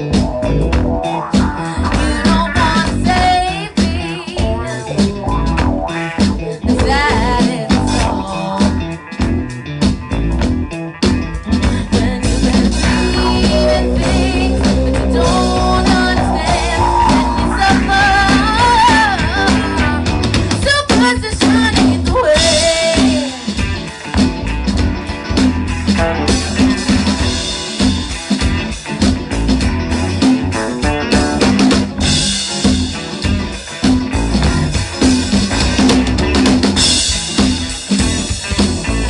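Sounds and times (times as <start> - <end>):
bass guitar: 0.0 - 39.0
drum kit: 0.0 - 39.0
electric guitars: 0.0 - 39.0
person singing: 1.4 - 5.2, 6.4 - 8.9, 11.6 - 23.6.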